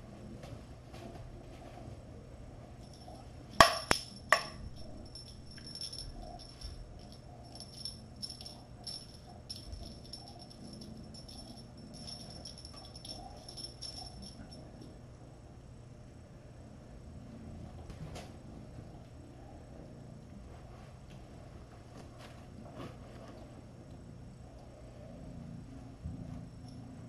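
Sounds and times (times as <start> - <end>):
toy bell jingling and rattling: 2.8 - 14.6.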